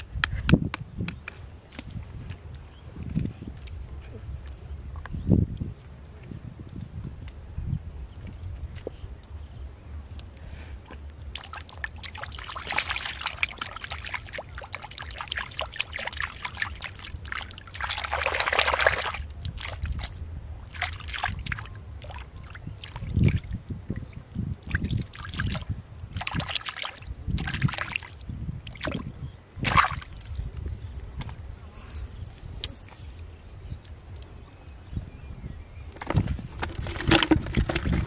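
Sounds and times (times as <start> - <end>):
water splashes: 10.8 - 30.5
hand sloshing in muddy water: 11.3 - 23.5, 24.7 - 30.3.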